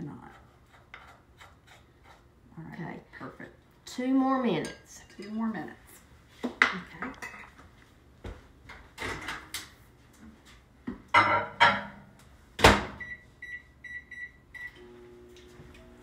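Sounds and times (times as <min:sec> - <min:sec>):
microwave keypad beeps: 0:13.0 - 0:14.8.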